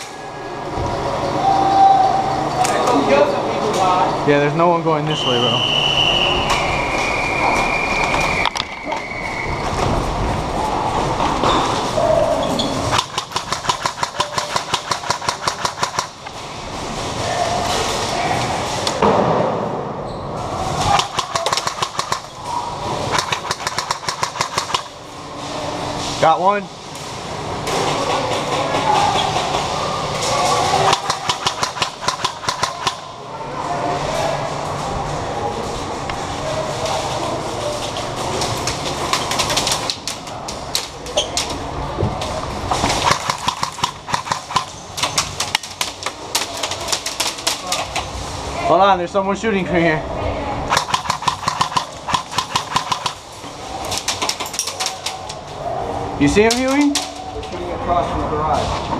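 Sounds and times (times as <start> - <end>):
steady rumbling noise: 5.6 - 54.2
airsoft rifle rapid shots: 12.9 - 16.2, 20.9 - 22.4, 23.1 - 25.0, 30.8 - 33.1, 43.0 - 44.8, 50.7 - 53.2.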